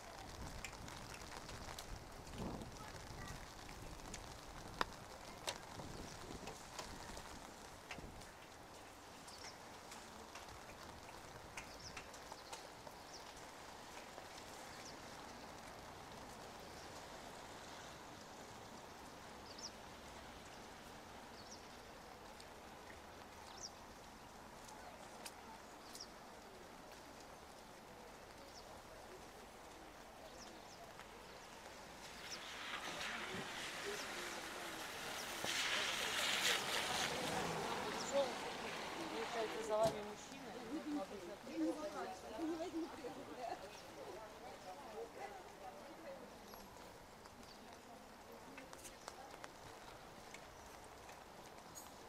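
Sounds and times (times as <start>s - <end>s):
light rain hiss: 0.0s - 52.0s
rain drip ticks: 0.0s - 52.0s.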